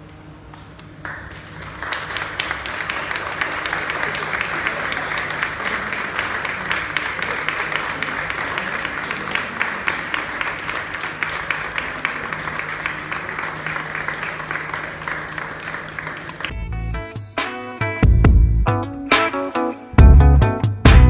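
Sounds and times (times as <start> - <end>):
audience applauding: 0.5 - 16.6.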